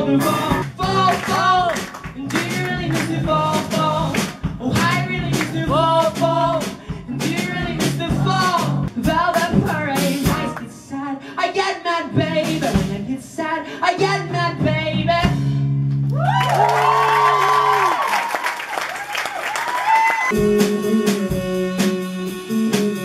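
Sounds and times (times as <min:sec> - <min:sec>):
live rock band playing: 0:00.0 - 0:10.6, 0:20.3 - 0:23.0
person singing: 0:00.0 - 0:15.6, 0:20.3 - 0:23.0.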